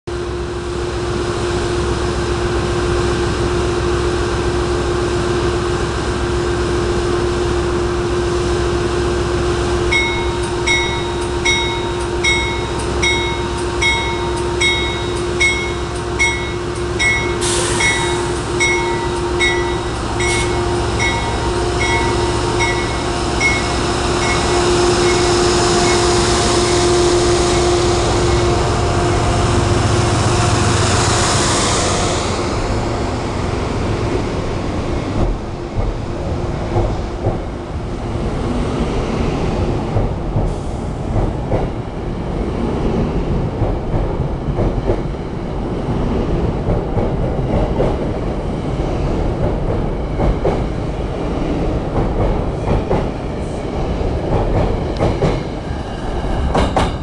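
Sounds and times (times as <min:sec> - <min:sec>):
locomotive engine hum: 0:00.1 - 0:57.0
locomotive bell ringing: 0:09.9 - 0:29.8.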